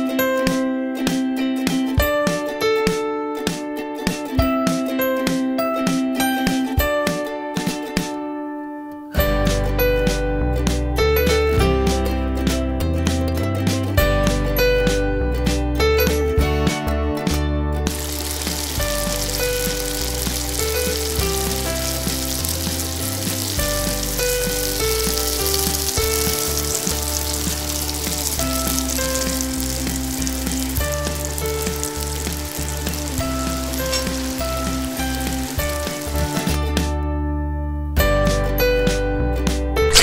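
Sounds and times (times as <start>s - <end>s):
light background music: 0.0s - 40.0s
garlic and onion sizzling in oil: 17.9s - 36.9s.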